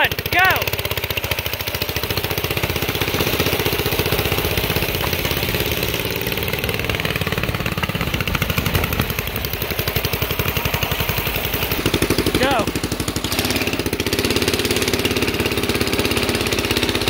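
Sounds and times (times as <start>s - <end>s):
single-cylinder engine puttering: 0.0s - 17.0s.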